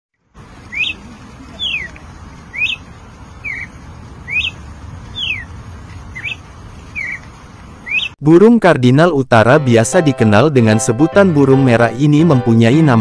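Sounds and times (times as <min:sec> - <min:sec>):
low background rumble: 0:00.2 - 0:08.2
cardinal singing whistled notes: 0:00.7 - 0:01.0, 0:02.5 - 0:02.8, 0:04.3 - 0:04.6, 0:06.2 - 0:06.4, 0:07.0 - 0:07.2, 0:07.8 - 0:08.2.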